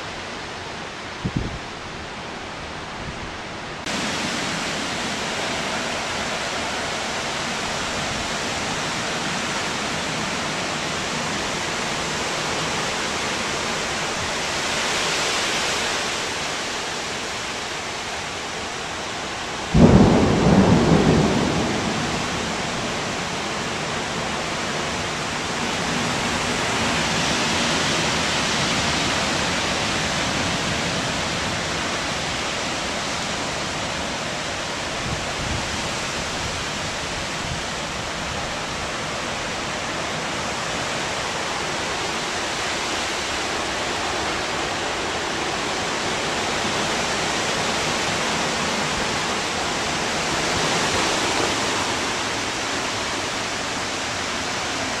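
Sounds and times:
gusting wind: 0.0s - 55.0s
heavy rain: 0.0s - 55.0s
low rumble of thunder: 19.7s - 23.3s.

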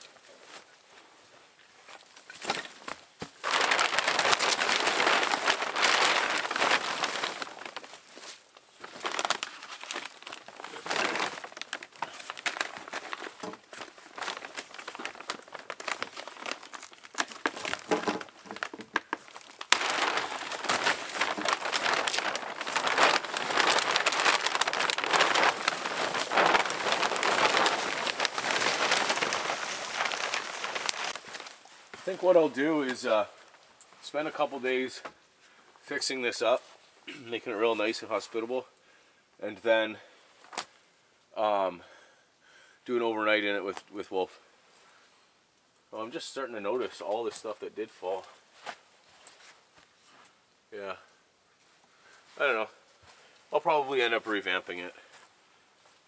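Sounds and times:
plastic sheeting crinkling: 1.8s - 35.1s, 46.8s - 51.0s, 52.0s - 56.0s.

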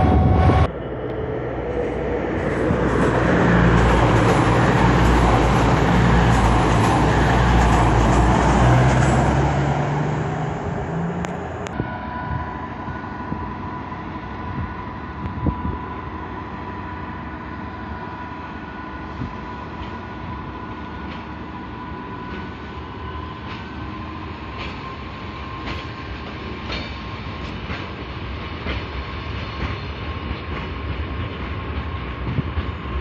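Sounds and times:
steady high tone: 0.0s - 14.1s
diesel train engines droning: 0.0s - 33.0s
wheels rushing on rail: 0.0s - 33.0s.

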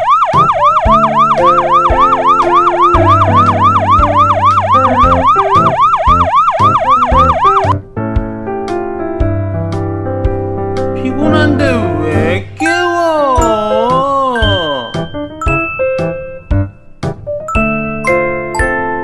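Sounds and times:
fast warbling siren effect: 0.0s - 7.8s
keyboard music: 0.0s - 19.0s
background music with bass: 0.3s - 19.0s.

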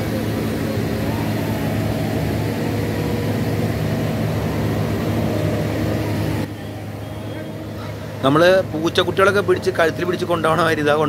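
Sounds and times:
excavator diesel engine running: 0.0s - 11.0s.

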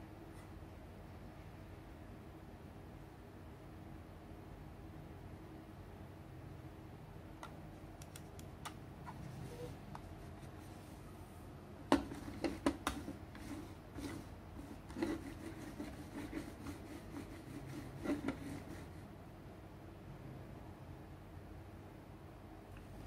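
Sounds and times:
mouse clicks: 7.4s - 8.8s
mouse knocking on desk: 11.9s - 13.2s, 18.0s - 18.8s
mouse scraping on desk: 12.0s - 19.0s.

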